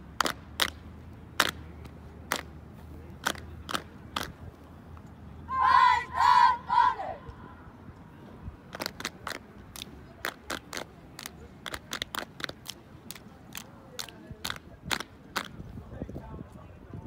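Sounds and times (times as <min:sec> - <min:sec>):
sharp hand claps: 0:00.2 - 0:00.8, 0:01.4 - 0:01.6, 0:02.3 - 0:02.5, 0:03.2 - 0:04.4, 0:08.7 - 0:15.6.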